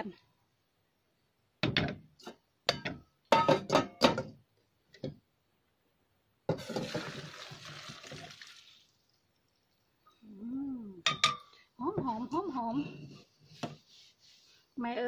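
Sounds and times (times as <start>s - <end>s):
broth pouring from pot: 6.5s - 10.1s.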